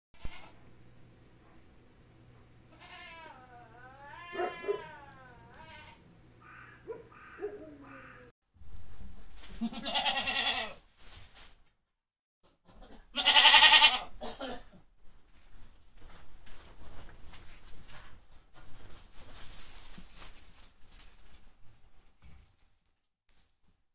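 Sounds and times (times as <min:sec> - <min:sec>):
goat bleating: 0:00.2 - 0:00.6, 0:02.7 - 0:06.6, 0:09.5 - 0:10.8, 0:12.7 - 0:14.3.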